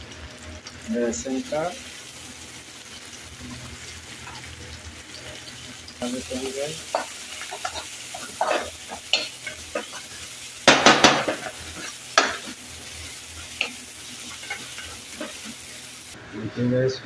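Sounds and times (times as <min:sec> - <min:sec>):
food sizzling: 0:00.0 - 0:16.5
metal spatula scraping a pan: 0:06.3 - 0:15.8.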